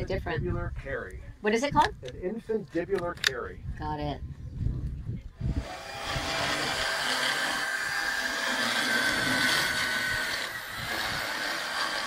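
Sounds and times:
motorized dental float grinding teeth: 0:05.4 - 0:12.0.

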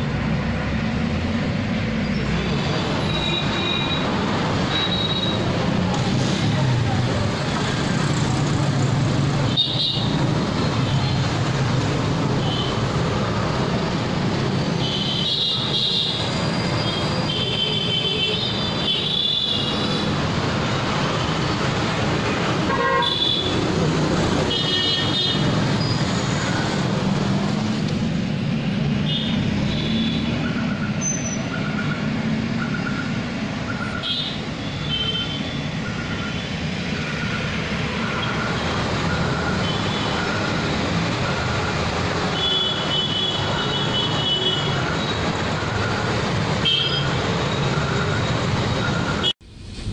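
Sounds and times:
engines rumbling: 0:00.0 - 0:49.9
vehicle horns tooting: 0:22.6 - 0:23.6, 0:42.3 - 0:45.2, 0:46.6 - 0:48.2.

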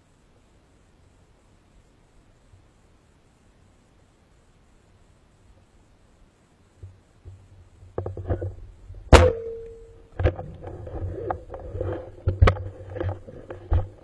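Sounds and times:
speargun shot crack: 0:09.1 - 0:09.7
steady ringing tone: 0:09.1 - 0:10.4.

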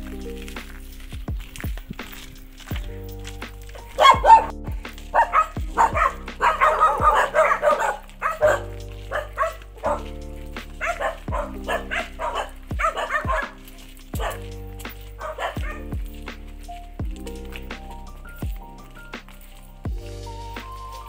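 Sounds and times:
background music with slow beat: 0:00.0 - 0:21.0
dog barking: 0:03.8 - 0:04.5, 0:05.1 - 0:10.2, 0:10.8 - 0:14.5, 0:15.2 - 0:15.9.

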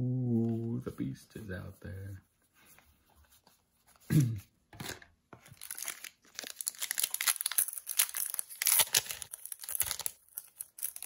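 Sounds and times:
plastic wrapper crinkling and tearing: 0:04.8 - 0:11.0.

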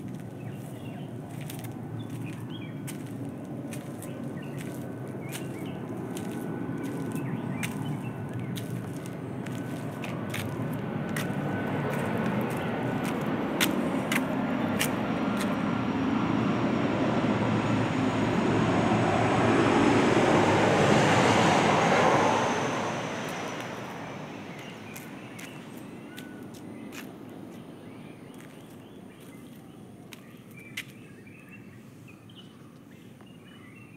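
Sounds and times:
vehicle engine passing by: 0:00.9 - 0:25.9.

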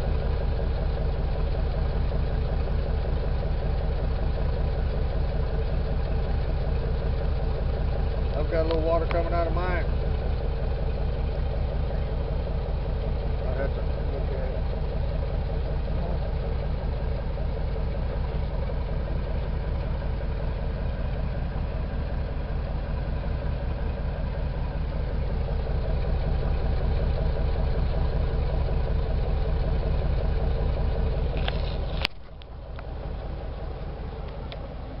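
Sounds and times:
car engine idling: 0:00.0 - 0:35.0
click: 0:31.3 - 0:32.9, 0:34.2 - 0:34.6.

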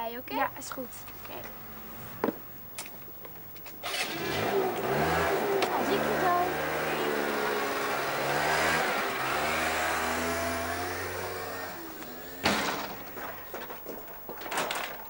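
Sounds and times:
moped engine revving: 0:03.8 - 0:13.6.

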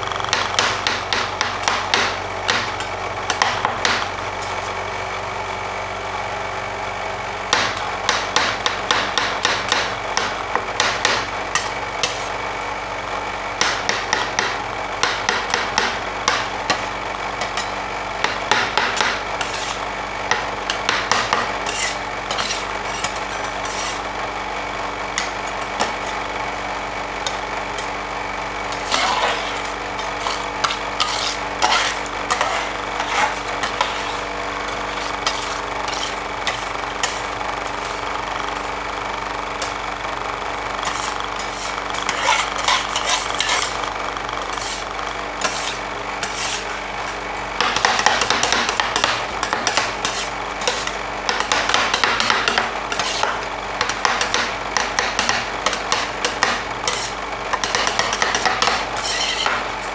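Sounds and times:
machine humming: 0:00.0 - 0:59.9
metal spatulas tapping and scraping: 0:17.4 - 0:24.0, 0:28.7 - 0:34.3, 0:40.8 - 0:43.8, 0:45.4 - 0:46.6, 0:47.6 - 0:59.7.

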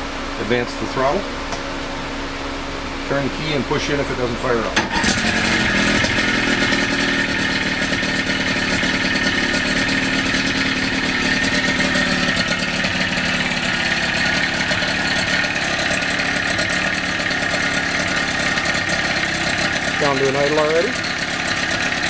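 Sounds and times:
outboard motor fast idle: 0:04.7 - 0:22.0.

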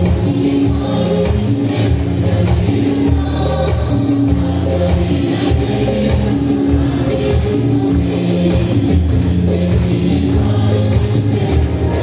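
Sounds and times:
keyboard: 0:00.0 - 0:12.0.

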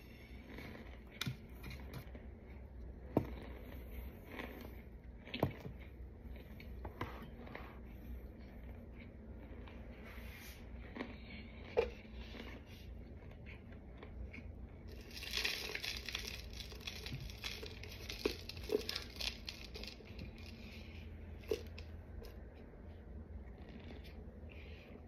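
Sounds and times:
dry crinkling and rustling: 0:14.9 - 0:20.8.

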